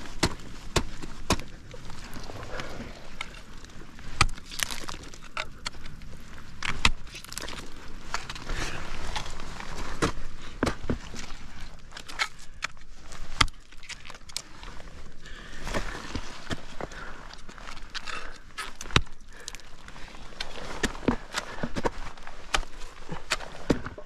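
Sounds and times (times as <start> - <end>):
ice axes striking ice: 0.0 - 2.0, 4.1 - 5.9, 6.5 - 8.4, 11.9 - 14.1, 17.9 - 19.6.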